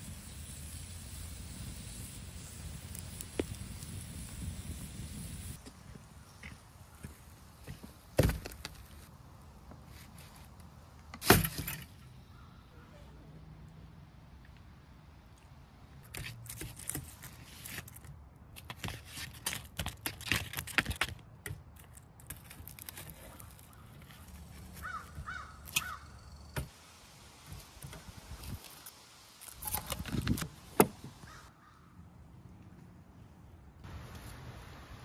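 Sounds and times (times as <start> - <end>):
crow cawing: 24.8 - 26.2, 31.2 - 31.9.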